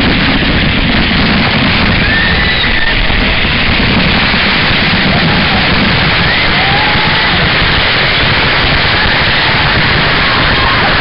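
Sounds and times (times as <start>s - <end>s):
waterfall rushing water: 4.2s - 11.0s.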